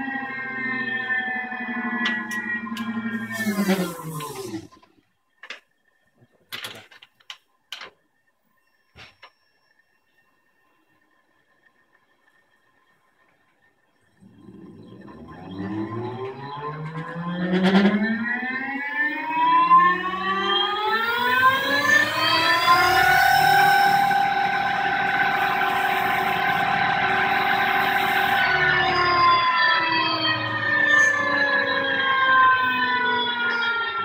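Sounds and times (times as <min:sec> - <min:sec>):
electric motor whine: 0:00.0 - 0:04.8, 0:14.2 - 0:34.0.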